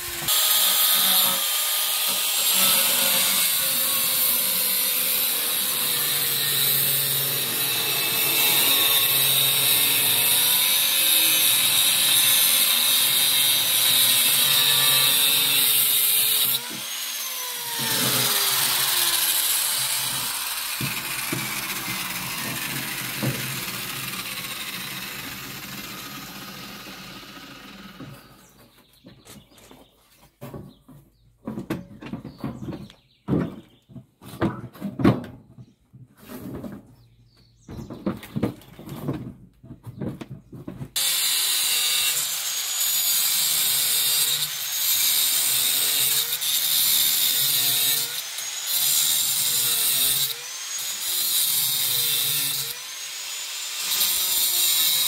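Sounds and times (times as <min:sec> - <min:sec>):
angle grinder cutting sheet steel: 0:00.0 - 0:28.4, 0:41.0 - 0:55.0.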